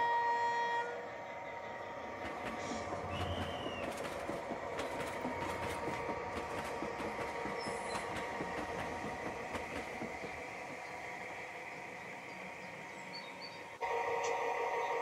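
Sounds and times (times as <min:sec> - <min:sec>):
wheels clicking over rail joints: 0:01.9 - 0:13.8.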